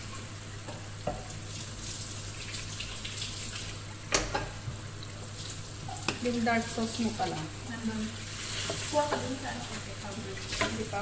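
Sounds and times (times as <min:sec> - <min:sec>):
chicken sizzling in sauce: 0:05.2 - 0:11.0.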